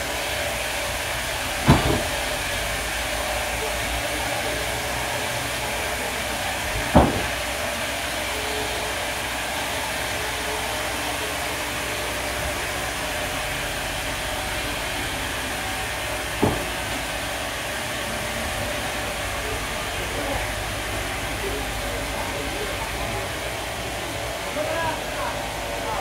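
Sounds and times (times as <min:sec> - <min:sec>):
sawmill machinery running: 0:00.0 - 0:26.0
sharp knocks: 0:06.9 - 0:07.4, 0:16.4 - 0:16.8.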